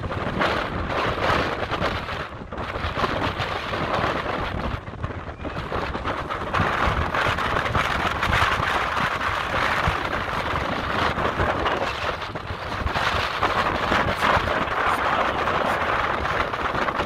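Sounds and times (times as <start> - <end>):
wind buffeting microphone: 0.0 - 17.0
ocean surf breaking on rocks: 5.7 - 17.0.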